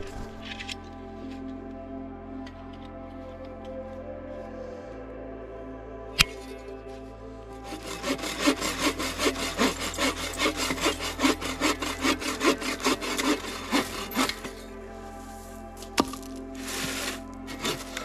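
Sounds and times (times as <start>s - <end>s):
background music: 0.0s - 18.0s
hand saw cutting wood: 7.6s - 14.7s, 16.0s - 18.0s.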